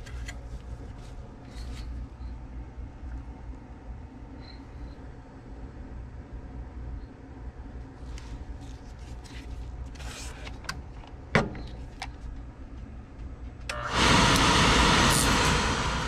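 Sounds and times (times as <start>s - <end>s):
burner fan rushing hiss: 13.7s - 16.0s.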